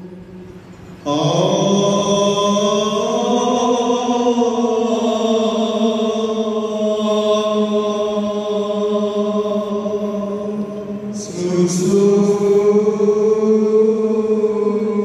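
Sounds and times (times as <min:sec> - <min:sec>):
man chanting: 0:01.1 - 0:15.0.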